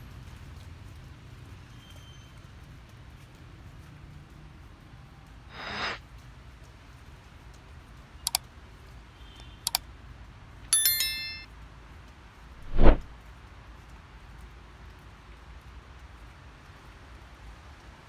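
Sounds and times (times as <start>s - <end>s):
notification bell ding: 10.8s - 11.5s
short whoosh: 12.6s - 13.0s.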